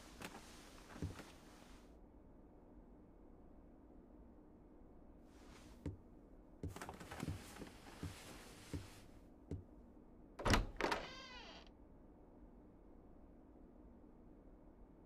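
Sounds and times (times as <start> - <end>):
soft footsteps: 0.0 - 1.8, 6.6 - 9.7
door latch clunking: 10.4 - 11.2
door creaking: 10.4 - 11.7.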